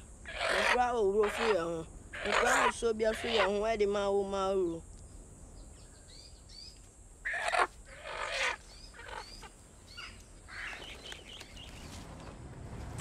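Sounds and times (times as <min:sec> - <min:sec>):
small birds chirping: 0:00.0 - 0:12.2
chicken squawking: 0:00.3 - 0:03.7, 0:07.3 - 0:10.8.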